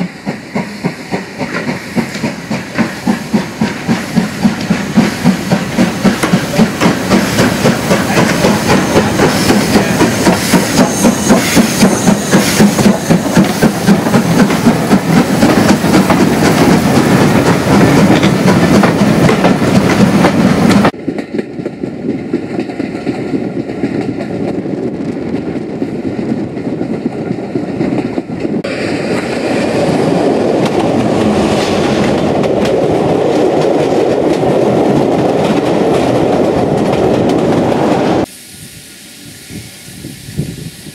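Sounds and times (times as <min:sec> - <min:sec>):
train rolling rumble and clatter: 0:00.0 - 0:38.3
steam locomotive exhaust beats: 0:00.0 - 0:40.9.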